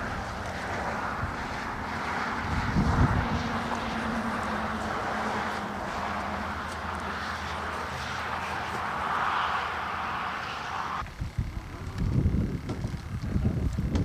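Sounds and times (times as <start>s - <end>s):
rushing noise: 0.0s - 11.0s.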